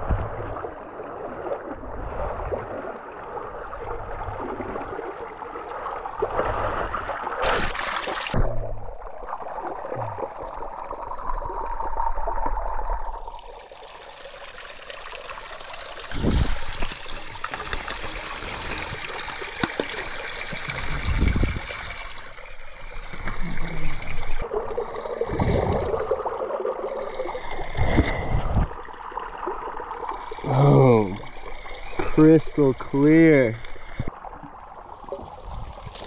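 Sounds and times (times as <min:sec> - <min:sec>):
water splashing into a pool: 0:00.0 - 0:36.0
water dripping and trickling: 0:09.2 - 0:36.0.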